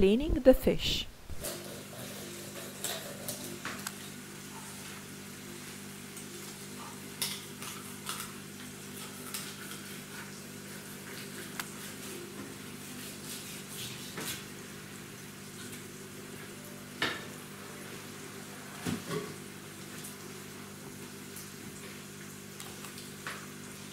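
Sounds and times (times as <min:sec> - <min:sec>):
knife scraping cutting board: 0:09.3 - 0:14.6.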